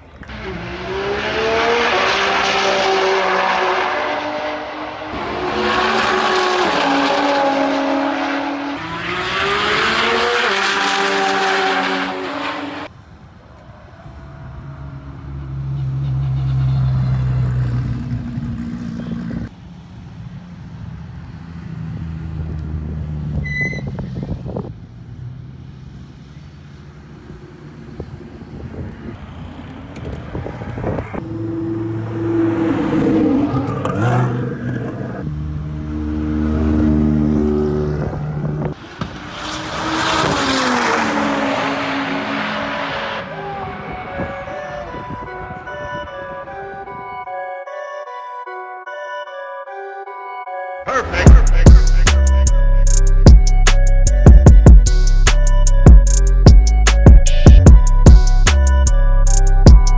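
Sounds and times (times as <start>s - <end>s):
race car accelerating through gears: 0.2s - 12.9s, 29.2s - 44.8s.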